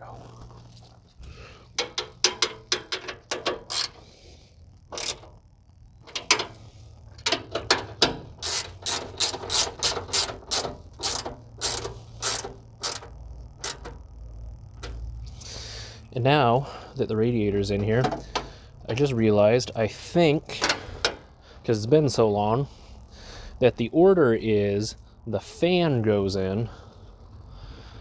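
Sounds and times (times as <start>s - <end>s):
ratchet wrench clicking: 1.8s - 4.1s, 4.9s - 5.4s, 6.0s - 6.6s, 7.2s - 14.0s.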